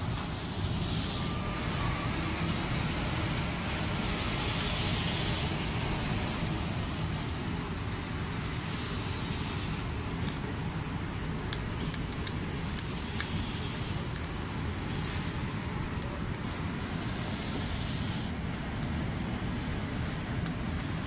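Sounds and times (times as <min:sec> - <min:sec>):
paint-spraying machinery humming: 0:00.0 - 0:21.0.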